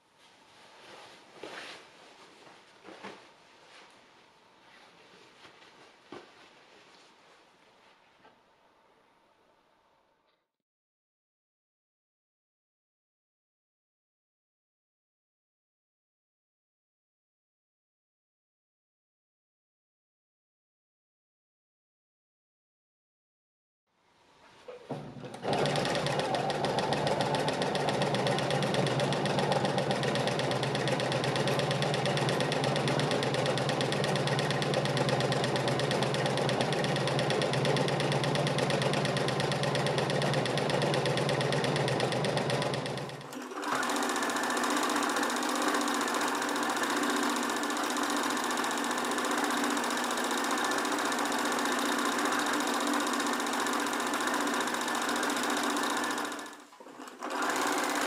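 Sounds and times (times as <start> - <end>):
sewing machine running: 24.9 - 58.0.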